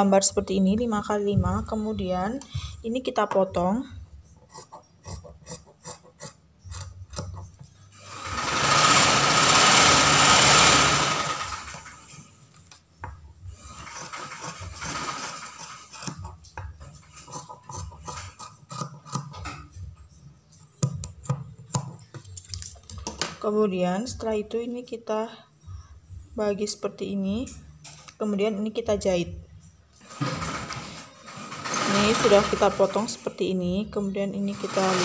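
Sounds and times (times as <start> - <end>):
scissors snipping fabric: 17.2 - 19.4.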